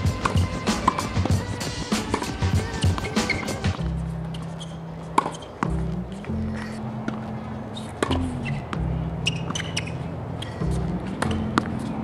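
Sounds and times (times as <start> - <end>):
hip-hop backing track: 0.0 - 4.2
racket striking tennis balls: 0.0 - 12.0
tennis balls bouncing on court: 0.0 - 12.0.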